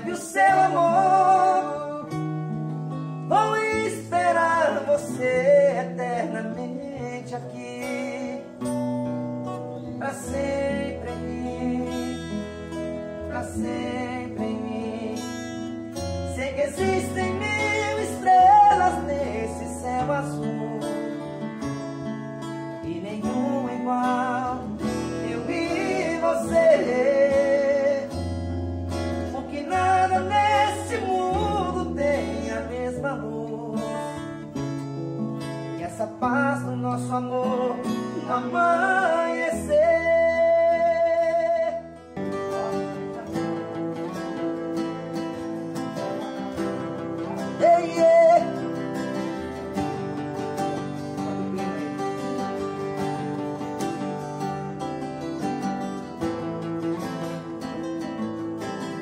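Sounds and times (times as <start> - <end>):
men singing: 0.0 - 2.2, 3.2 - 8.7, 10.0 - 15.7, 16.3 - 21.4, 22.8 - 28.4, 29.2 - 34.2, 35.6 - 44.5, 46.0 - 53.4
acoustic guitars strummed: 0.0 - 59.0.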